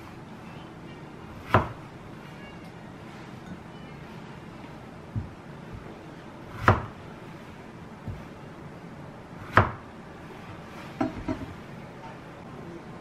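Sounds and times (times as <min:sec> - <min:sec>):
knife knocking on cutting board: 0:11.0 - 0:11.6.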